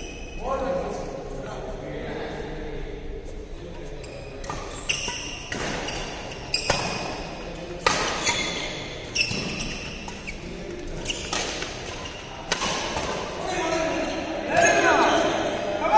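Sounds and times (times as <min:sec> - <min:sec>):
shoes squeaking on court floor: 0:03.9 - 0:15.5
rackets striking shuttlecock: 0:10.9 - 0:13.3.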